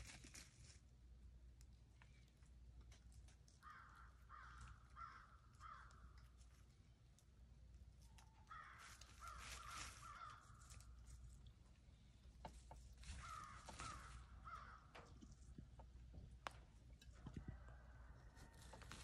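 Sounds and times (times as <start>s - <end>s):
crow cawing: 3.6s - 6.2s, 8.4s - 10.8s, 13.1s - 15.0s.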